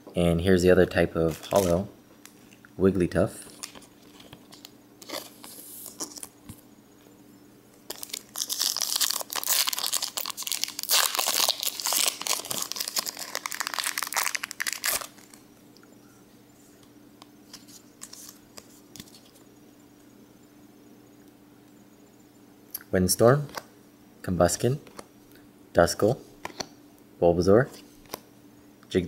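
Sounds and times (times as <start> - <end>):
foil wrapper crinkling and tearing: 1.3 - 1.8, 3.5 - 6.3, 7.9 - 15.4
trading cards handled: 1.3 - 2.4.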